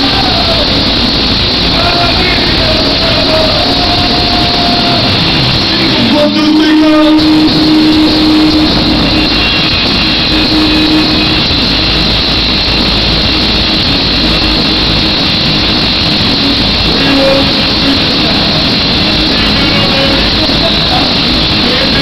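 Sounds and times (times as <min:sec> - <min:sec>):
crowd roar: 0:00.0 - 0:11.8.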